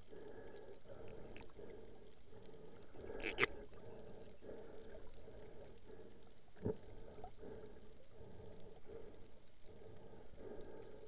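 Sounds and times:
underwater water noise: 0:00.0 - 0:11.0.

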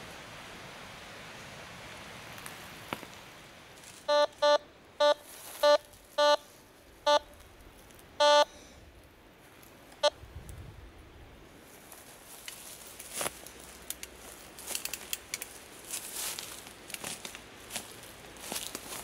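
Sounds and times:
metal detector beeps: 0:04.1 - 0:07.4, 0:08.2 - 0:08.5.

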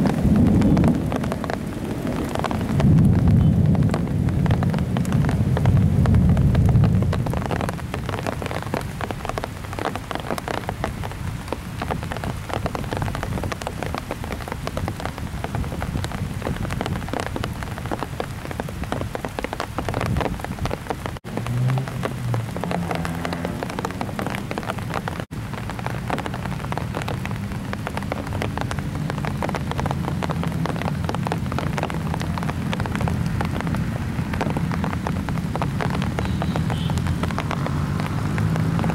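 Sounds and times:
low thunder rumble: 0:00.0 - 0:08.1
heavy rain falling: 0:00.0 - 0:38.9.

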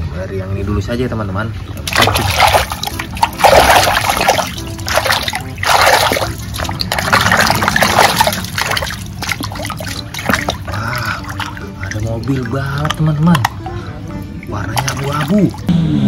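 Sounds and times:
water splashing and sloshing: 0:01.4 - 0:15.7
hand scrubbing plastic toy: 0:01.8 - 0:13.7.

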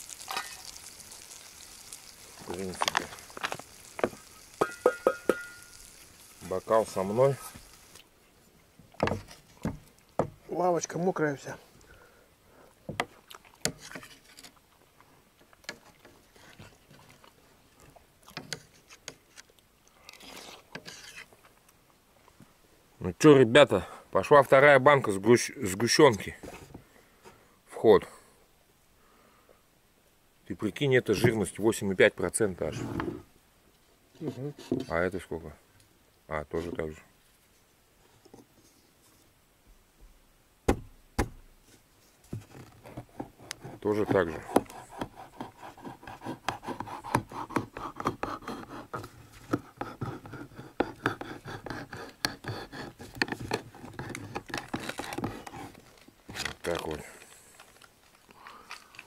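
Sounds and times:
sharp knocks: 0:40.7 - 0:41.4.

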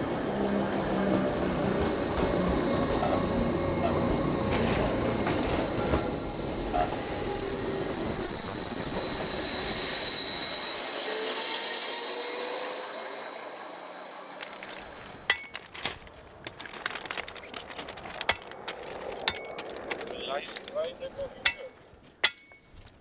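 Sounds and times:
train wheels rumbling: 0:00.0 - 0:22.0
high whine of train: 0:00.0 - 0:22.6
sharp clicks from wheels: 0:14.2 - 0:21.0.

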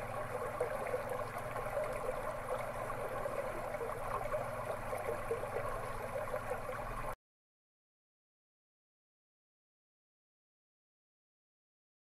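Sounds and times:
running water babbling: 0:00.0 - 0:07.2.

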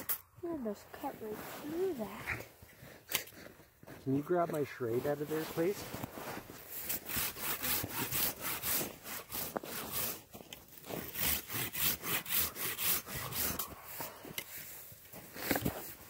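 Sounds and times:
pruning saw cutting log: 0:06.7 - 0:14.5.

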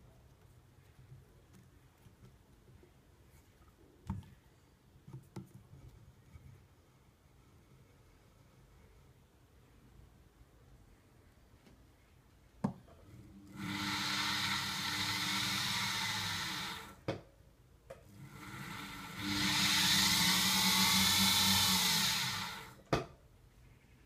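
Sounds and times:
milling machine motor humming: 0:13.5 - 0:17.0, 0:18.2 - 0:22.8.

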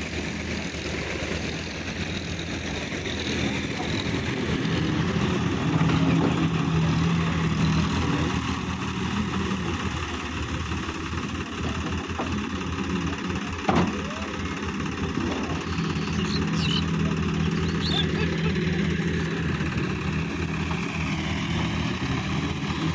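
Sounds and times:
tractor diesel engine running: 0:00.0 - 0:22.9.

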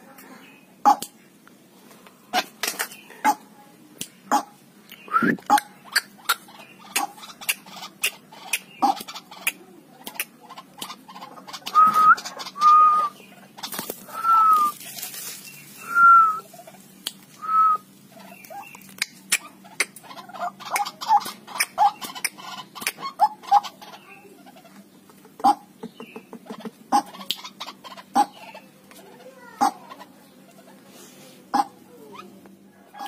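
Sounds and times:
bird whistled notes: 0:11.7 - 0:13.2, 0:14.2 - 0:14.7, 0:15.8 - 0:16.4.

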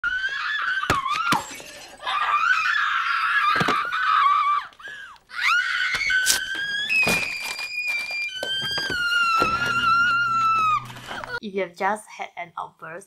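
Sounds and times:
woman screaming: 0:00.0 - 0:07.1, 0:08.4 - 0:11.4.

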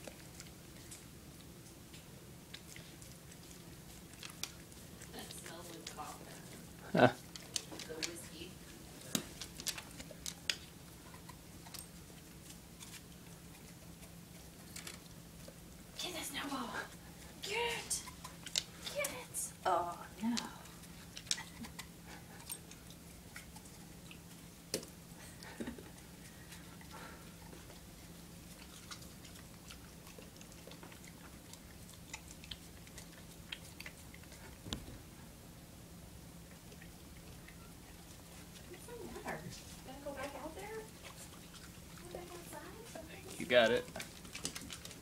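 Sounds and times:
dog licking snow on wooden floor: 0:00.0 - 0:19.2, 0:36.4 - 0:45.0.

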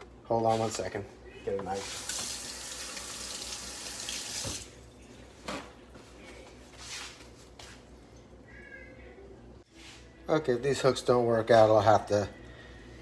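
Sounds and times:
faucet running into a sink: 0:01.8 - 0:04.7.

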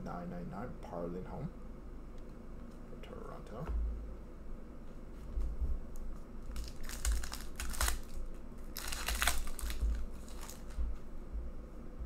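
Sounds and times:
foil wrapper crinkling: 0:06.4 - 0:10.8.

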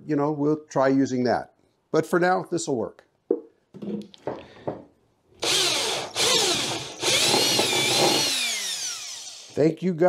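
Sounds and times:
cordless drill boring through plastic: 0:05.4 - 0:09.6.

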